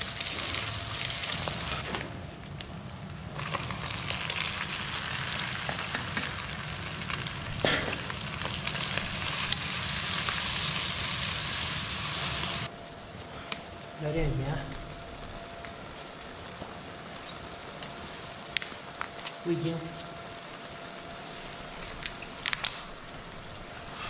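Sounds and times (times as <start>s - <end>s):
food sizzling in hot oil: 0.0s - 1.8s, 3.3s - 12.7s.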